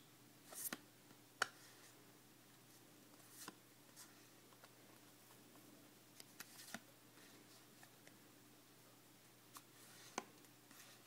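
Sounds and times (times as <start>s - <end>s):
cards sliding rustle: 3.1s - 5.4s, 6.2s - 8.1s, 9.5s - 11.0s.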